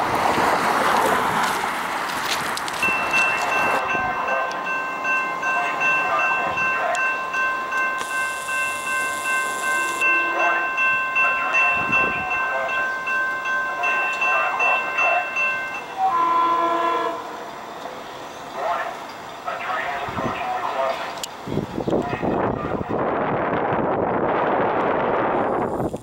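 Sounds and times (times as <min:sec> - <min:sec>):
railroad crossing bells ringing: 0:02.2 - 0:21.3.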